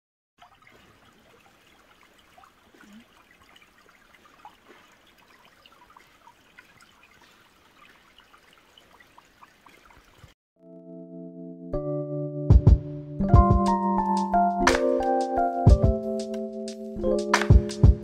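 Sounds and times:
small water plinks: 0:00.4 - 0:10.4
stream trickling under ice: 0:00.4 - 0:10.4.

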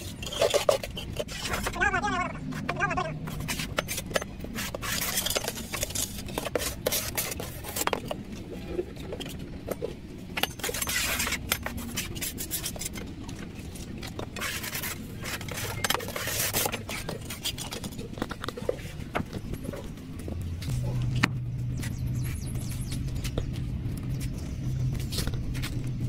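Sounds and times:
trowel scraping concrete: 0:00.0 - 0:08.2, 0:10.4 - 0:13.0, 0:13.8 - 0:19.0.

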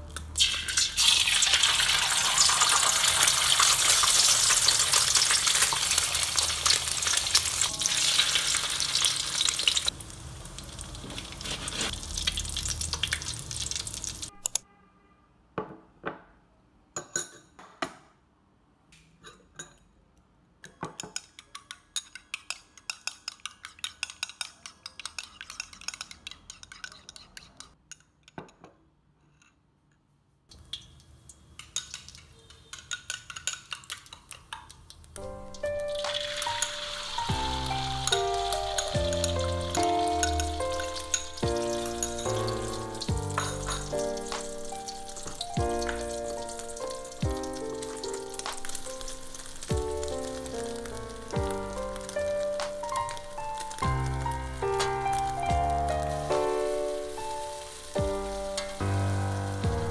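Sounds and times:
egg sizzling in hot oil: 0:00.2 - 0:14.3, 0:30.5 - 0:59.9
metal spoon beating eggs in bowl: 0:20.6 - 0:28.4, 0:31.6 - 0:34.9, 0:35.7 - 0:53.9.

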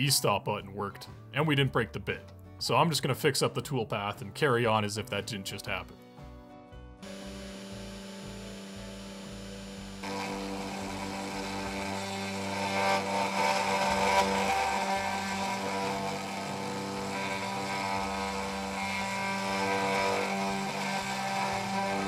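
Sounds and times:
cnc router spindle motor whine: 0:07.0 - 0:22.0
end mill cutting aluminum: 0:07.0 - 0:22.0.

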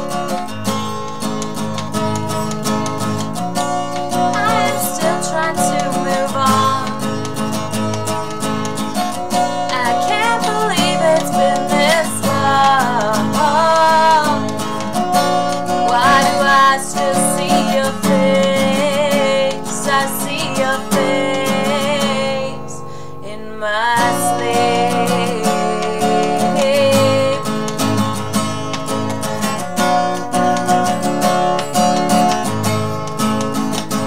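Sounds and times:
acoustic guitar strumming: 0:00.0 - 0:34.0
woman singing: 0:04.1 - 0:07.2, 0:09.6 - 0:28.1.

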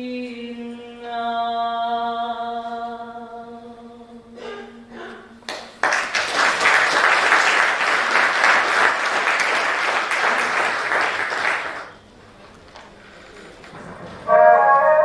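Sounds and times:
audience applause: 0:05.5 - 0:12.0
held sung note: 0:14.3 - 0:15.0.

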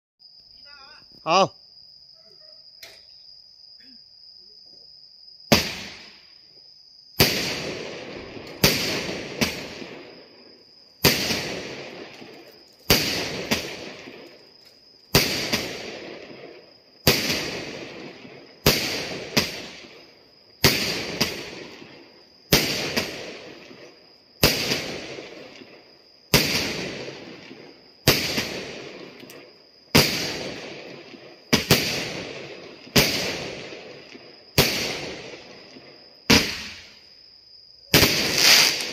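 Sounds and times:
crickets chirping: 0:00.2 - 0:38.9
firework bangs: 0:05.5 - 0:06.3, 0:07.1 - 0:37.1, 0:37.8 - 0:38.9
crackle of bursting stars: 0:37.9 - 0:38.9.

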